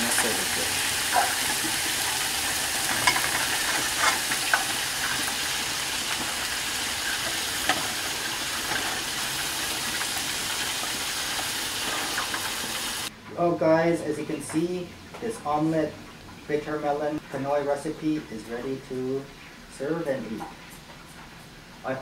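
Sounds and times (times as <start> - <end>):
oil sizzling in a skillet: 0.0 - 13.1.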